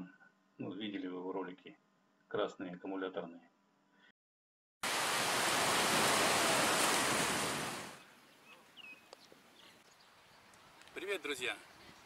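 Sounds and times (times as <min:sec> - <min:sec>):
faint outdoor ambience: 0:04.9 - 0:12.0.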